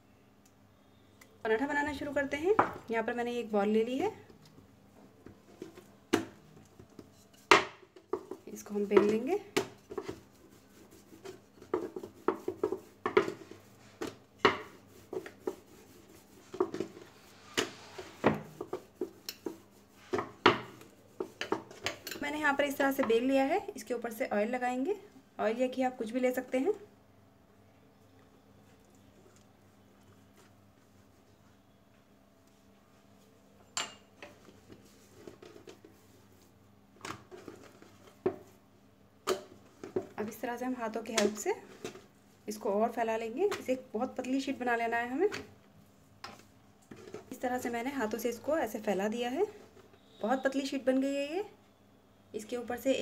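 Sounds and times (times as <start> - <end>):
rolling pin rolling dough: 6.9 - 21.9.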